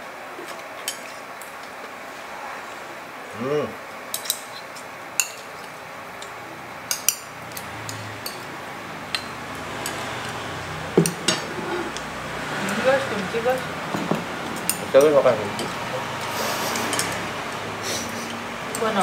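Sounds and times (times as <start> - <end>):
chopsticks clicking on ceramic bowls: 14.0 - 17.6.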